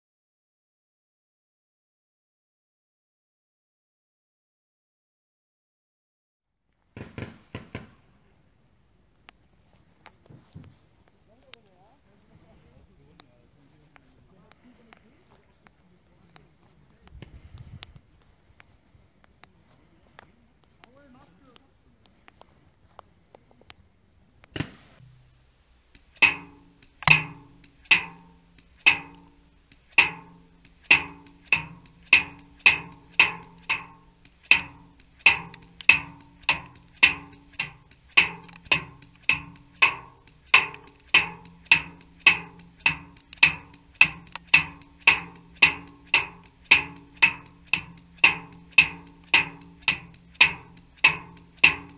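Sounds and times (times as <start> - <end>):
paintball marker firing sharp cracks: 24.5 - 25.3, 25.9 - 51.9
paintballs breaking on steel drums: 26.0 - 51.9.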